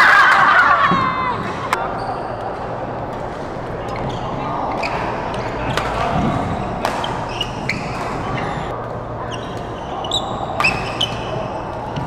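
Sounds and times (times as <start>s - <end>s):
echoing sports hall background: 0.0s - 12.0s
shoes squeaking on court floor: 3.9s - 8.7s, 9.3s - 12.0s
racket hitting shuttlecock: 4.8s - 9.0s.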